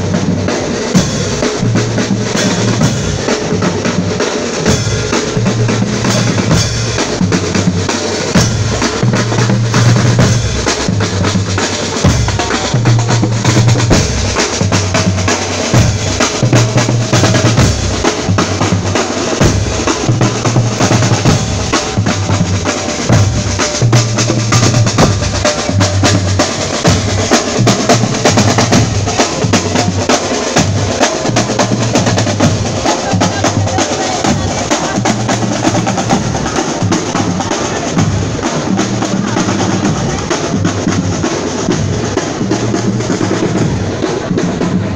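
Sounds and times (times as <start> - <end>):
bass drums beating: 0.0 - 44.9
snare drums: 0.0 - 44.9.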